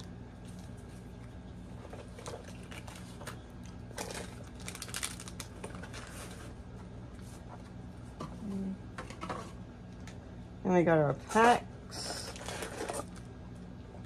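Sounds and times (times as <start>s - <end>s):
steady low hum: 0.0s - 14.0s
cards and packaging rustling: 0.4s - 7.8s, 11.3s - 13.4s.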